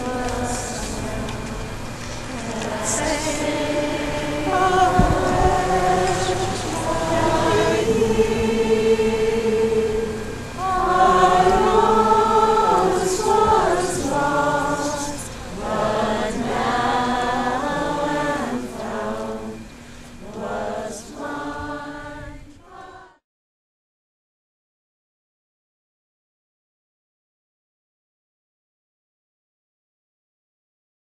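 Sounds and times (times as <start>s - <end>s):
crowd singing long held notes: 0.0s - 23.2s.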